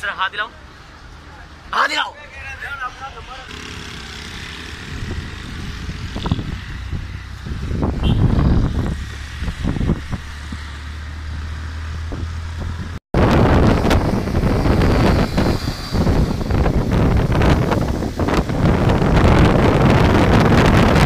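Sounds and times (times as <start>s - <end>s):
wind buffeting microphone: 4.3s - 21.0s.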